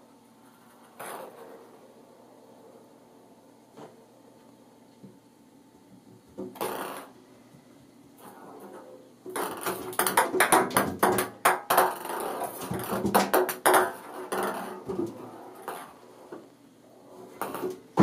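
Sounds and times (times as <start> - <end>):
ping pong ball bouncing in bathtub: 9.3 - 14.7.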